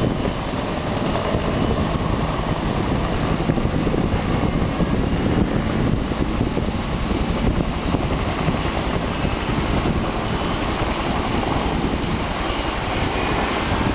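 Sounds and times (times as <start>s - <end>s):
helicopter flying past: 0.0s - 13.9s
fast river water rushing: 5.5s - 13.9s.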